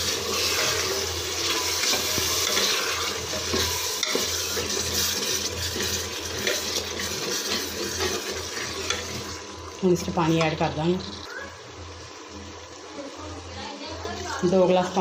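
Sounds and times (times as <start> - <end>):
metal ladle scraping pot: 0.0 - 9.4
oil sizzling: 0.0 - 15.0.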